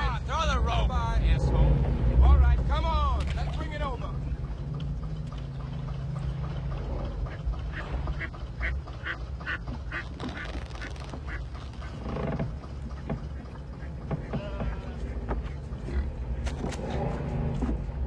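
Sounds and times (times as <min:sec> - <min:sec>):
boat engine idling: 0:00.0 - 0:18.0
ducks quacking: 0:07.1 - 0:16.7.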